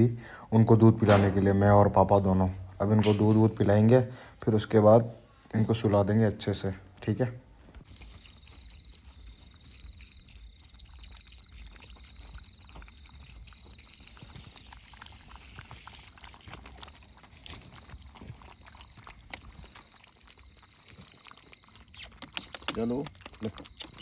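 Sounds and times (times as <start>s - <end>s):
puppies lapping milk: 7.6s - 24.0s
milk pouring: 7.8s - 24.0s.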